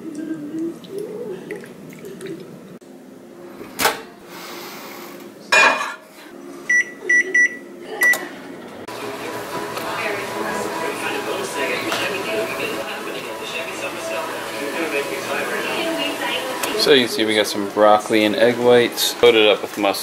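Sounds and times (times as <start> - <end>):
microwave humming: 6.6 - 20.0
keypad beeps: 6.7 - 8.2.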